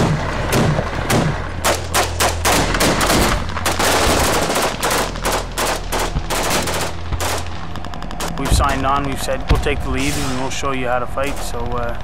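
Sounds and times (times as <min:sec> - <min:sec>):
low hum: 0:00.0 - 0:12.0
automatic gunfire: 0:00.5 - 0:09.1.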